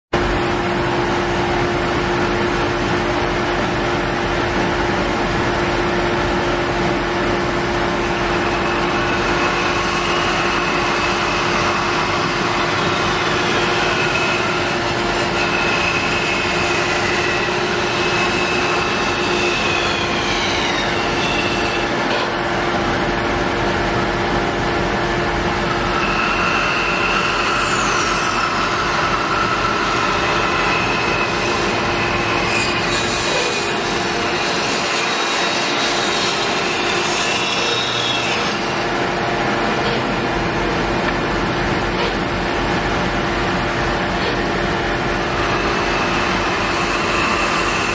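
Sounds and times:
high whine from saw blade: 0.2 - 47.9
bandsaw cutting wood: 8.3 - 22.3, 25.9 - 38.9, 45.4 - 47.9.

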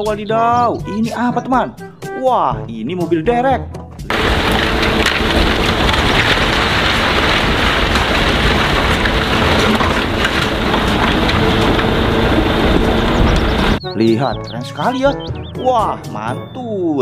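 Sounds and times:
diesel truck engines humming: 4.1 - 15.6
wind on microphone: 10.3 - 13.8.

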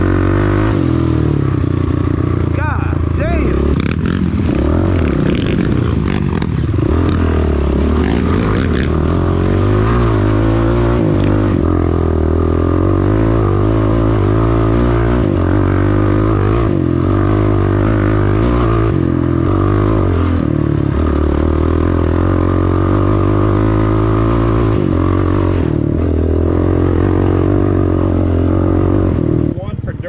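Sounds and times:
atv engine running: 0.0 - 30.0.

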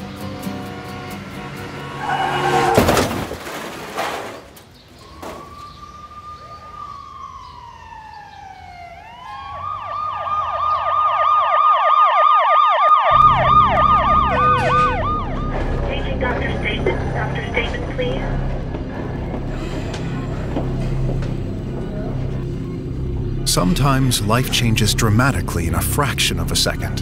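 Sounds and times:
emergency vehicle siren: 4.9 - 26.9
low vehicle rumble: 13.1 - 27.0.

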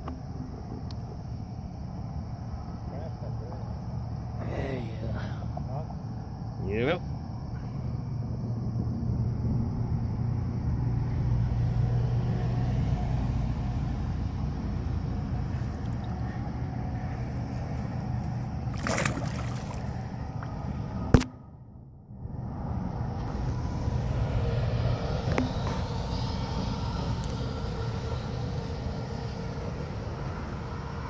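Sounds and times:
steady low rumble: 0.0 - 31.0
fish splashing into river: 18.6 - 20.6.

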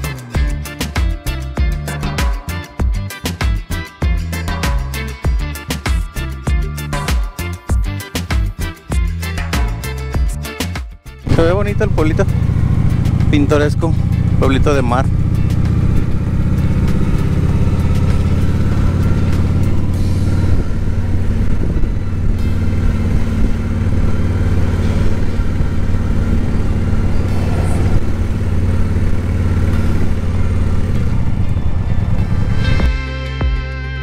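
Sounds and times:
motorcycle engine cruising slowly: 11.3 - 32.9.

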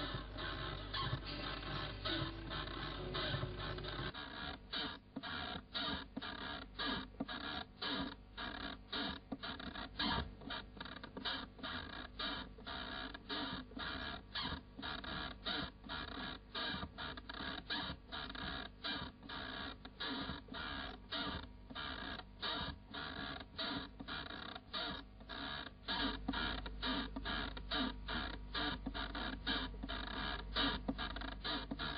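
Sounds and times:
rhythmic machine-like pulsing: 0.0 - 4.2.

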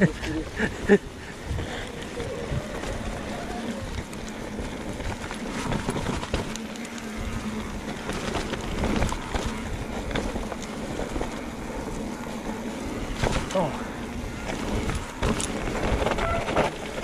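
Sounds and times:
wind noise on microphone: 0.0 - 12.1, 12.8 - 17.0
bike knocks and rattles: 0.0 - 17.0
tyres rumbling on rocks: 0.0 - 17.0.

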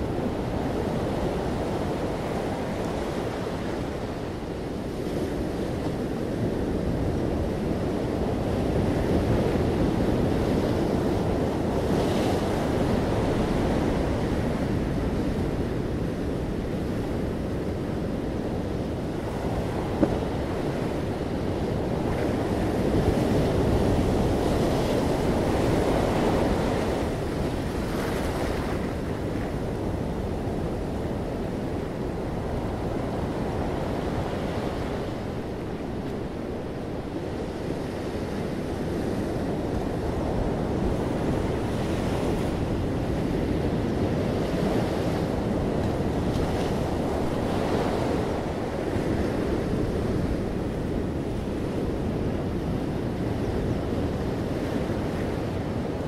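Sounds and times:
ocean surf breaking: 19.0 - 56.0.

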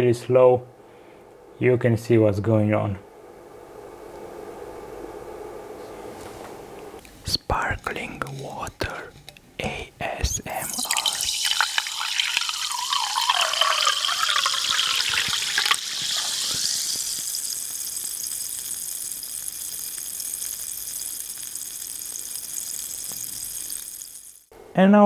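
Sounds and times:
carbonated water fizzing: 10.4 - 24.5
water pouring into a mug: 10.5 - 24.5.

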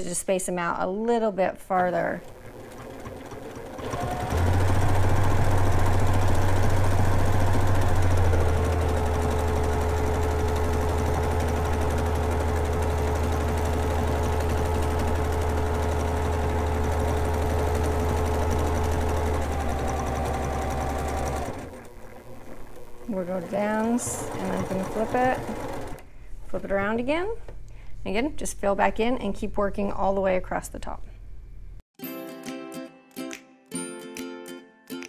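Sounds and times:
sewing machine running: 2.0 - 26.1.

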